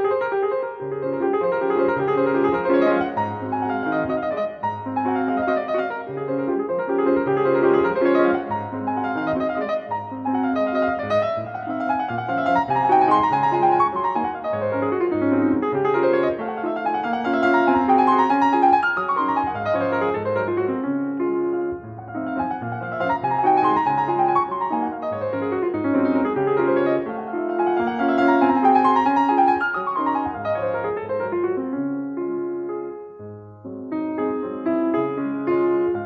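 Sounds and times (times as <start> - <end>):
lively piano music: 0.0 - 36.0.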